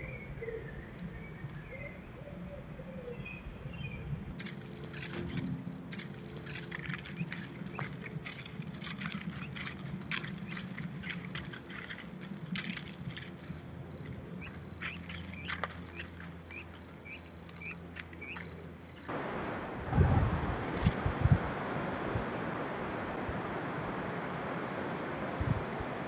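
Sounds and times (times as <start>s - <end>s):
bird chirping: 0.0s - 19.1s
dry leaves crackling and rustling: 4.4s - 19.2s
wind hiss: 19.0s - 26.0s.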